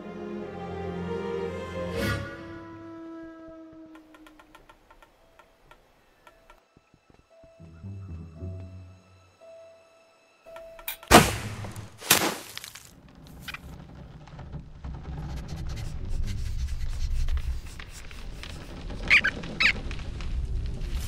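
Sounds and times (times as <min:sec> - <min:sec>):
low rumble: 0:13.0 - 0:21.0
high squeaks: 0:17.4 - 0:19.9.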